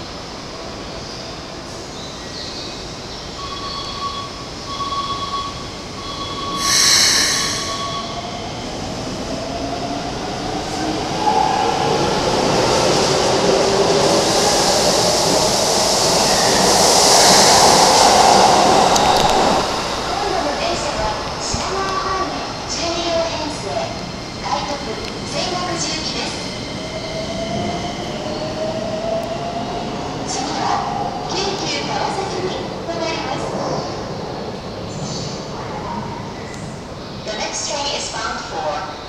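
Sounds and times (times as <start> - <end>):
train running noise: 0.0 - 39.0
short beeps: 3.4 - 8.2
high wheel squeal: 3.4 - 8.4
brief hiss: 6.6 - 7.8.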